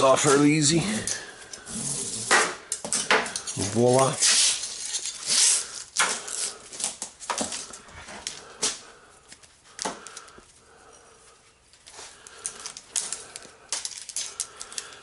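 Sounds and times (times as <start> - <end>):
metal cable rattling and scraping: 0.1 - 8.4, 12.2 - 15.0.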